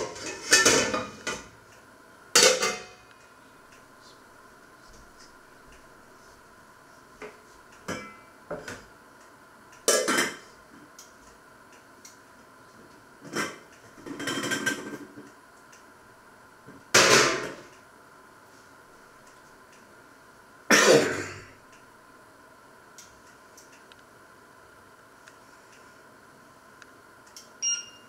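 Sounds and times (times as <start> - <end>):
dishes and cookware clattering: 0.0 - 1.5, 2.4 - 3.0, 7.9 - 8.8, 9.9 - 10.4, 13.2 - 15.1.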